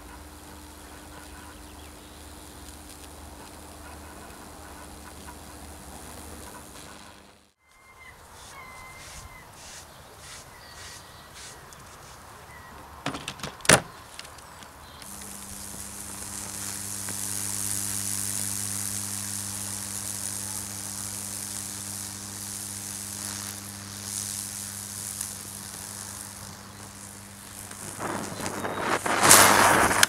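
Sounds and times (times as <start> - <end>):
wood charring and arcing crackle: 0.0 - 7.6, 13.1 - 30.0
transformer humming: 15.0 - 30.0.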